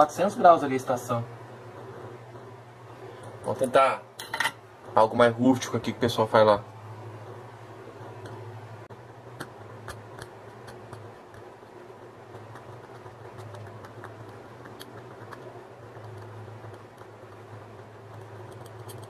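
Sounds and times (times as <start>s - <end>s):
steady low hum: 0.0s - 19.0s
tweezers scraping circuit board: 9.4s - 19.0s.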